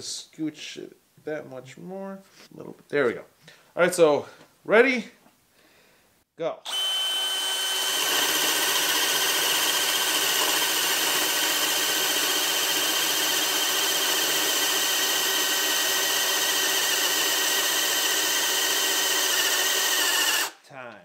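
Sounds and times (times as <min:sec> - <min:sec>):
cordless drill boring into wood: 0:06.7 - 0:20.6.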